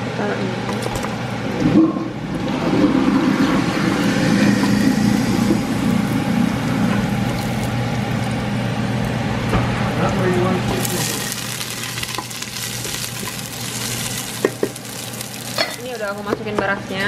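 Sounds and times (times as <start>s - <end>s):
mechanical hum and hiss: 0.0s - 17.0s
herbs sizzling in oil: 3.8s - 9.8s, 10.6s - 16.4s.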